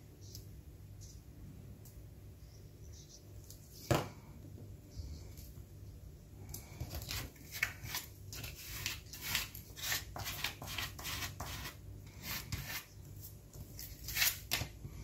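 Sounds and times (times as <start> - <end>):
paper rustling and rubbing: 7.0 - 14.6.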